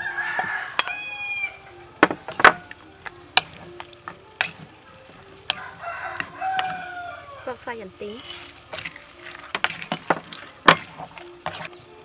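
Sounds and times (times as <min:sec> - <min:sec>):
wooden spoon knocking on mortar: 0:02.0 - 0:07.1, 0:07.9 - 0:11.8.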